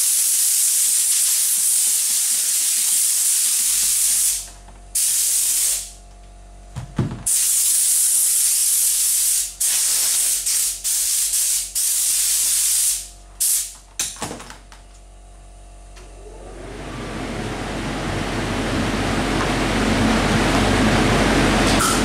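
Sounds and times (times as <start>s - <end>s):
air blow gun hissing: 0.0s - 6.0s, 7.3s - 13.7s.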